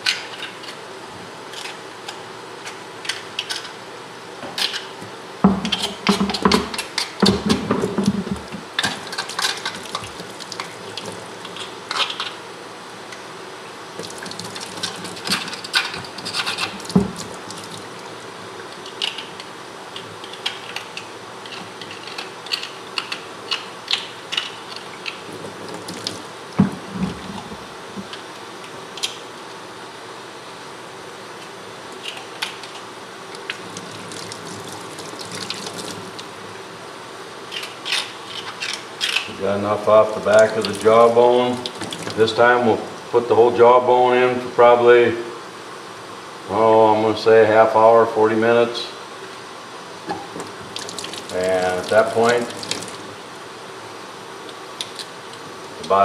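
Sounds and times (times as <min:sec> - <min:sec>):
tool scraping against bone: 0:14.8 - 0:16.9
tap water running into sink: 0:25.3 - 0:27.2, 0:33.7 - 0:36.2, 0:41.6 - 0:42.2, 0:50.1 - 0:53.1.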